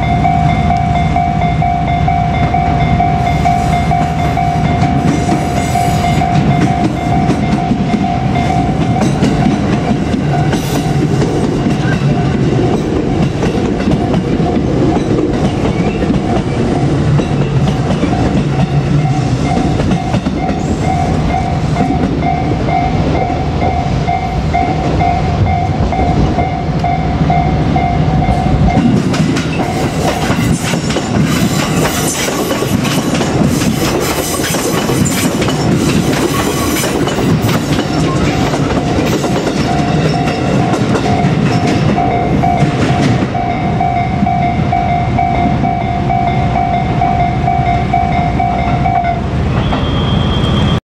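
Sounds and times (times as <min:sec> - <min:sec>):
train wheels clacking over rail joints: 0:28.7 - 0:43.4.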